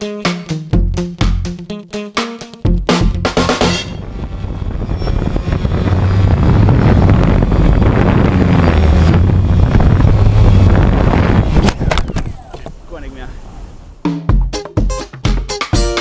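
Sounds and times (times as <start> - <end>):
drone rotor noise: 3.3 - 12.4.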